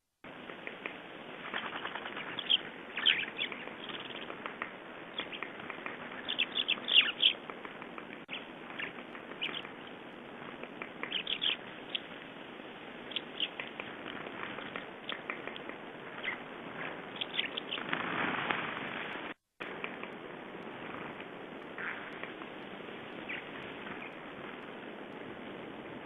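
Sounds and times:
steady background hiss: 0.3 - 26.0
songbirds chirping: 0.5 - 18.0, 21.0 - 24.7.

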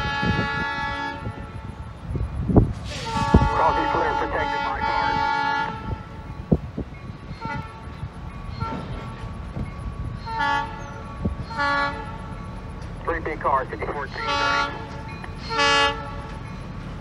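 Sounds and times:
train air horn blasts: 0.0 - 1.8, 2.8 - 6.2, 7.4 - 9.0, 10.2 - 10.8, 11.4 - 12.3, 14.1 - 16.3
train rumbling: 0.0 - 17.0.

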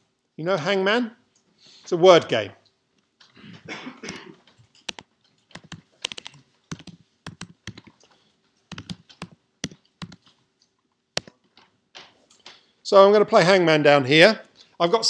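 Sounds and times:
computer keyboard typing: 4.7 - 10.4, 11.2 - 11.7.

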